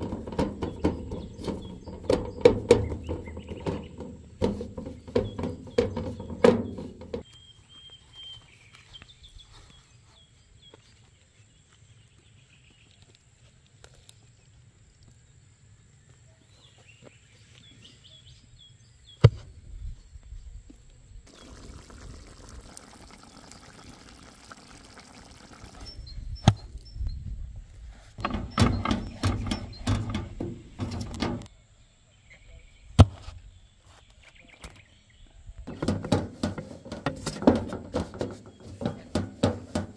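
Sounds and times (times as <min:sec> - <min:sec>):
sharp knocks: 0:00.0 - 0:07.2, 0:28.2 - 0:31.5, 0:35.7 - 0:39.9
birds chirping: 0:00.0 - 0:13.1, 0:21.0 - 0:27.5, 0:28.2 - 0:39.9.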